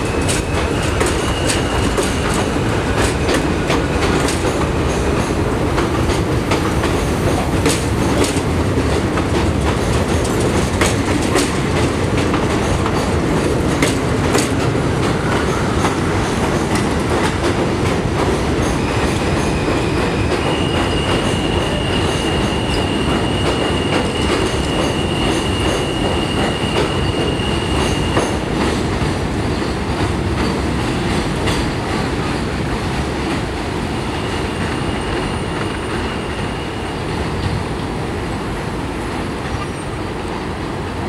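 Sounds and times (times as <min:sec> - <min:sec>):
high wheel squeal: 0:00.0 - 0:02.6, 0:18.8 - 0:28.4, 0:34.1 - 0:37.5
train wheels clicking over rail joints: 0:00.0 - 0:38.0.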